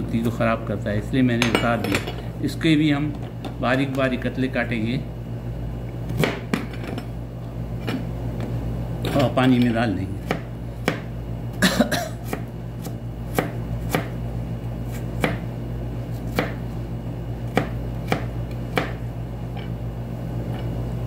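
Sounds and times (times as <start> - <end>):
knife slicing ginger: 12.2 - 14.2, 14.8 - 15.5, 16.1 - 16.6, 17.5 - 19.0.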